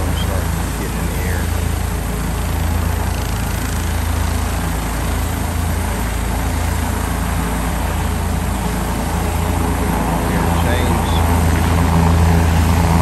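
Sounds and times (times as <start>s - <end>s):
heavy vehicle engine idling: 0.0s - 13.0s.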